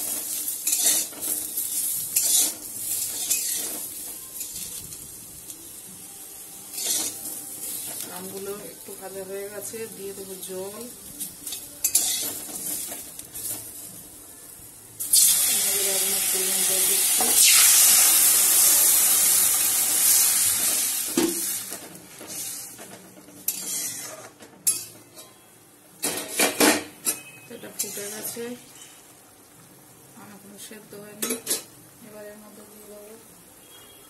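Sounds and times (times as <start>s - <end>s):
water sizzling in hot wok: 0.0s - 24.3s, 27.6s - 34.0s.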